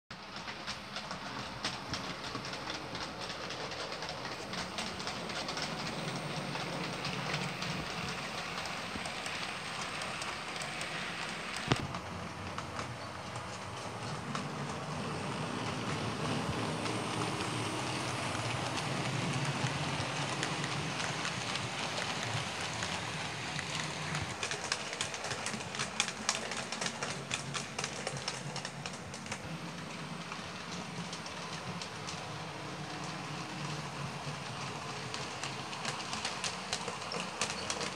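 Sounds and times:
model train wheels rushing on track: 0.1 - 37.9.

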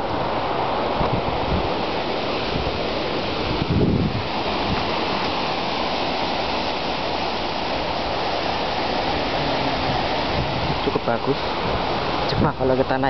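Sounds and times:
waves washing on rocky shore: 0.0 - 13.0.

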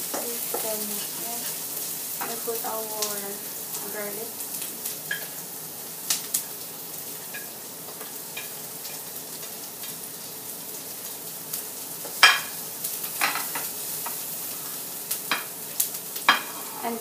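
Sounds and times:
spatula scraping and clacking on pan: 0.0 - 2.5, 7.3 - 9.1, 12.0 - 14.3, 16.2 - 17.0
garlic and onion sizzling in oil: 0.0 - 17.0.

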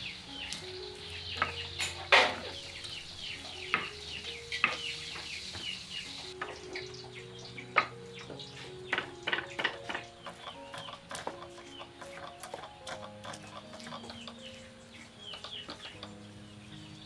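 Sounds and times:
pestle grinding in stone mortar: 9.0 - 14.3.

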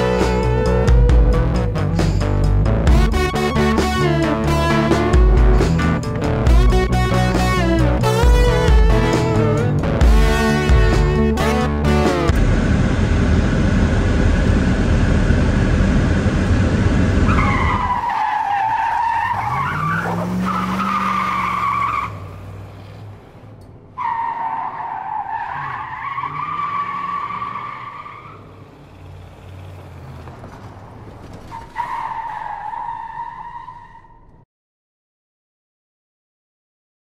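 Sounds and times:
engine revving: 0.0 - 18.0, 19.3 - 21.6
car tyres squealing: 16.7 - 23.1, 24.0 - 34.4.

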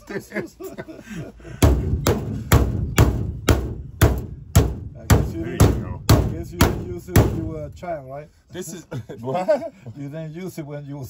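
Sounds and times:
hammer ringing on aluminum: 1.6 - 7.7.

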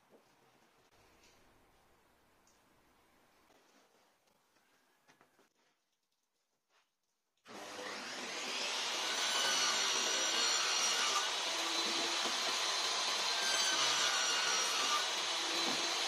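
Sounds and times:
circular saw whining: 7.5 - 16.0.

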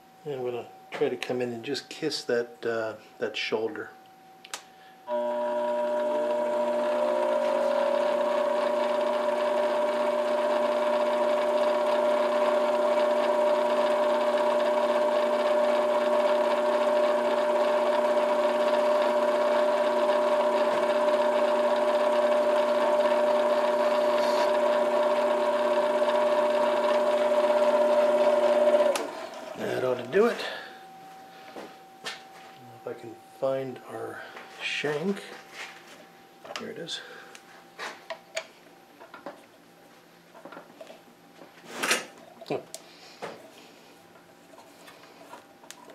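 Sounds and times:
metal lathe motor whine: 5.1 - 31.2.

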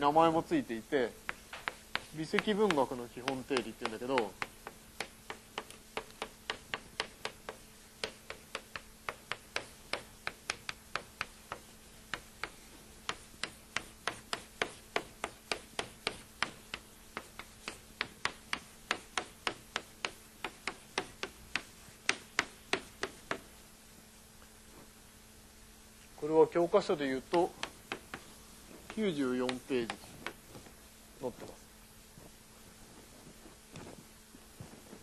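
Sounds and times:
chalk tapping on blackboard: 1.0 - 23.6, 27.0 - 30.8.

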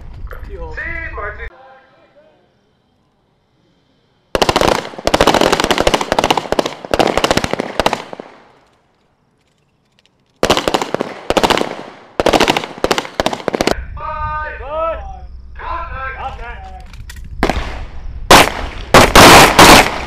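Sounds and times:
pistol shots with echo: 17.4 - 20.0.

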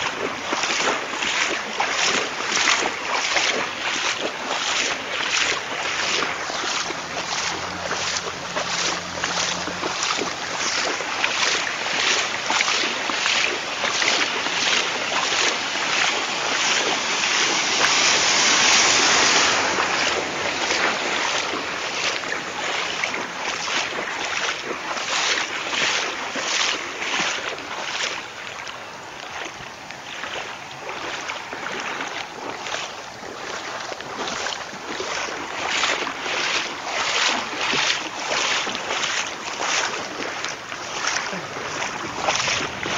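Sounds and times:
footsteps splashing through water: 0.0 - 42.9
rushing noise: 15.6 - 22.9.

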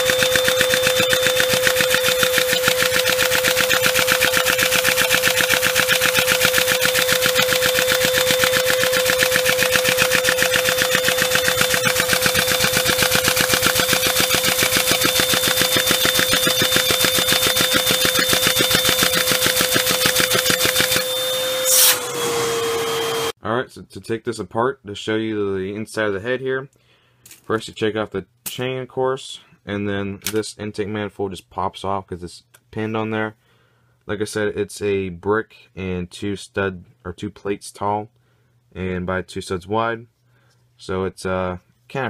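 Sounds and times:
toy engine rattling: 0.0 - 21.3
vacuum cleaner whine: 0.0 - 23.4.

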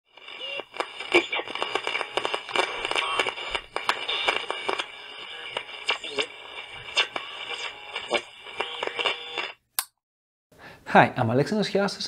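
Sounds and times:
radio-like static crackling: 0.1 - 9.6.

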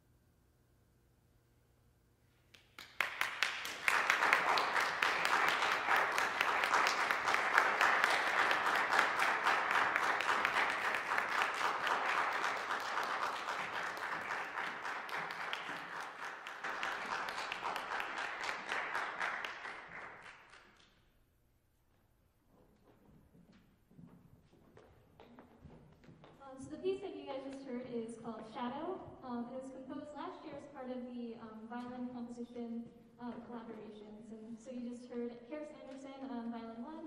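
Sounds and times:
audience applauding: 2.6 - 20.9.

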